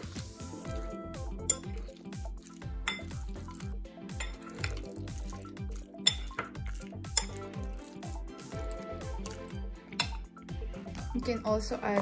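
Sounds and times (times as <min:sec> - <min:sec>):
music with deep bass beat: 0:00.0 - 0:12.0
fork clinking against bowl: 0:01.4 - 0:02.1, 0:02.9 - 0:03.5, 0:04.2 - 0:10.2.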